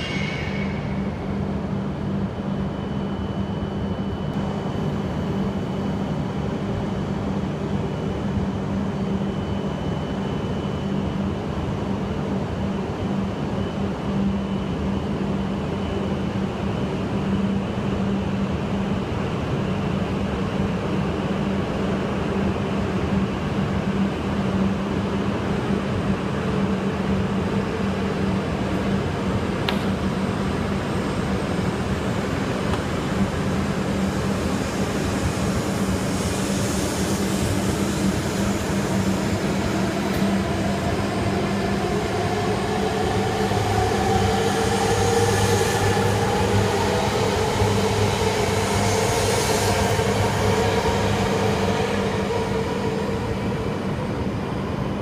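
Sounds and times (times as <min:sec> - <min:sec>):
rising whine: 0:00.0 - 0:04.6, 0:33.2 - 0:55.0
train rolling noise: 0:00.0 - 0:08.4, 0:09.0 - 0:55.0
train low hum: 0:00.0 - 0:55.0.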